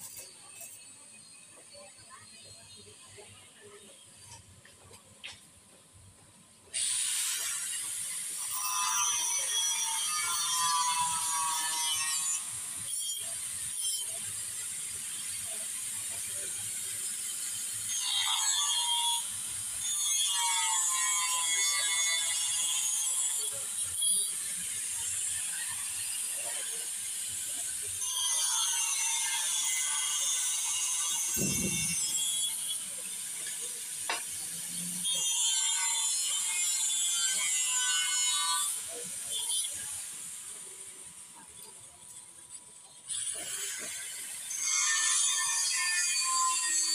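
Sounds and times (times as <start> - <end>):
angle grinder screeching on metal: 0.0 - 3.2, 6.7 - 42.1, 42.8 - 46.9
angle grinder whining free: 17.3 - 40.1.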